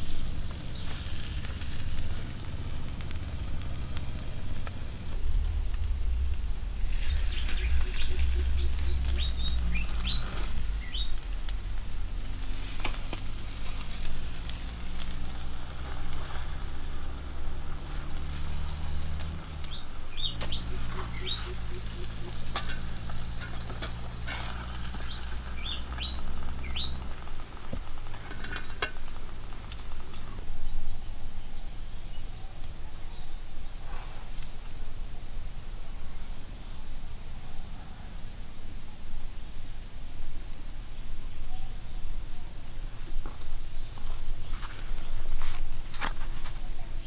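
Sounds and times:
fish sizzling on a grill: 0.0s - 32.0s
birds chirping: 0.0s - 38.2s, 40.8s - 47.0s
low steady hum: 0.0s - 47.0s.

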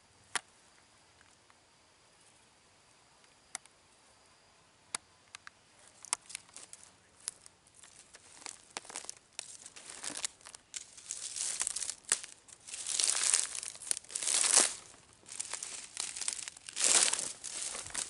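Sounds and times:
dry twigs snapping: 5.4s - 18.0s
dry leaf litter rustling: 6.2s - 18.0s.

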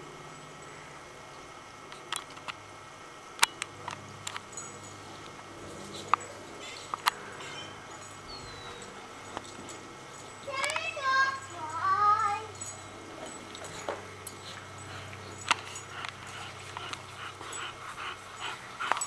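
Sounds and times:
low steady hum: 0.0s - 19.0s
sharp clicks and ticks: 8.8s - 11.8s, 15.3s - 19.0s.

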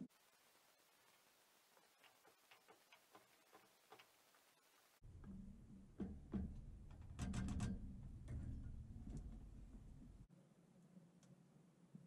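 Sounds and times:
low hum: 5.0s - 10.8s.

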